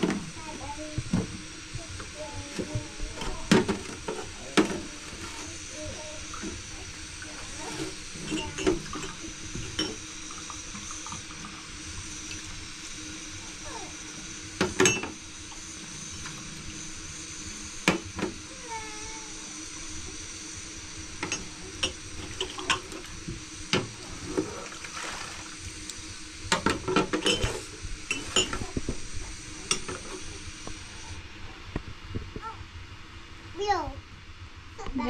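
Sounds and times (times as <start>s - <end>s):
water pouring: 24.0s - 26.0s.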